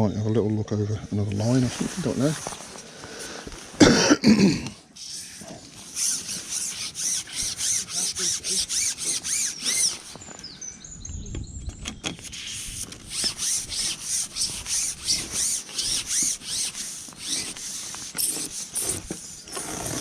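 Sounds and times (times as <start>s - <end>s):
fishing pole rubbing swishes: 5.0s - 10.2s, 12.2s - 20.0s.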